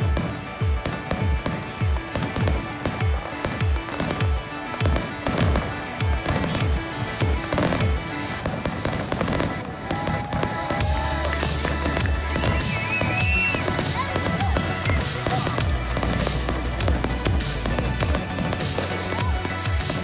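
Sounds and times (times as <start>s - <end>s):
fireworks bursting and crackling: 0.0s - 20.0s
music with steady beat: 0.0s - 20.0s.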